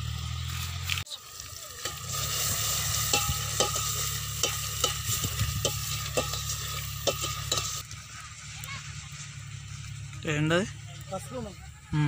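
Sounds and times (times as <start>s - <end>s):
vegetables sizzling in a pot: 0.0s - 10.5s
ladle scraping a steel pot: 1.8s - 7.8s.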